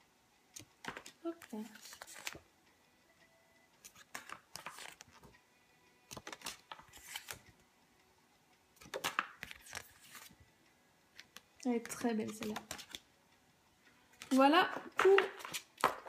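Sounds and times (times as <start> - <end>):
cards rustling and clicking: 0.6 - 2.4, 3.8 - 5.4, 6.1 - 7.5, 8.8 - 10.4, 11.1 - 13.1, 14.1 - 16.0.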